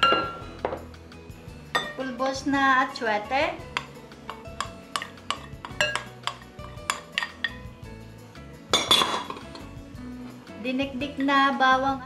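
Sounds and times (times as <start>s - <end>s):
spoon scraping bowl: 3.7s - 7.6s
spoon tapping on ceramic bowl: 3.7s - 7.6s.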